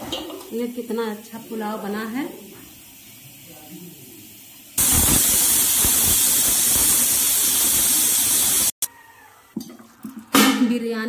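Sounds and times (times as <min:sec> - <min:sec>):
pressure cooker whistle hissing: 0:04.8 - 0:08.8.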